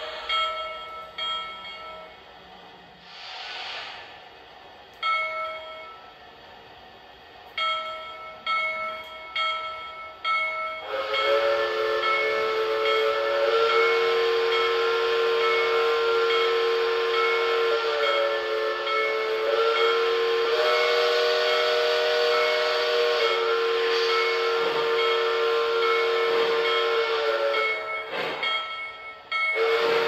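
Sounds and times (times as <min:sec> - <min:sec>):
steam hiss: 0:00.0 - 0:00.7, 0:02.6 - 0:04.7, 0:10.8 - 0:28.6
long multi-tone whistle blast: 0:10.8 - 0:28.4, 0:29.5 - 0:30.0.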